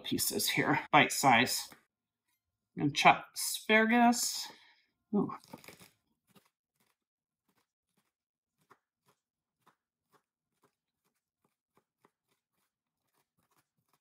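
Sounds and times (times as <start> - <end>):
knife chopping on wooden board: 7.5 - 14.0.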